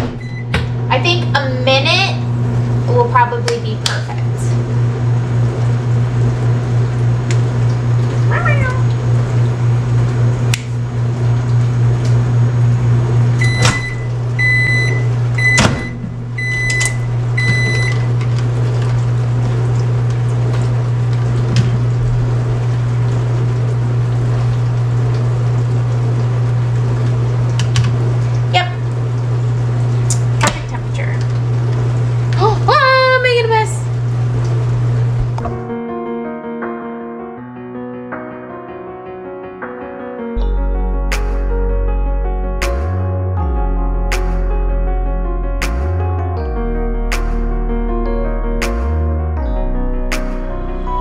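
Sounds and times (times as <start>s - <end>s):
microwave oven humming: 0.0s - 35.7s
microwave click: 10.5s - 10.8s, 13.3s - 19.0s.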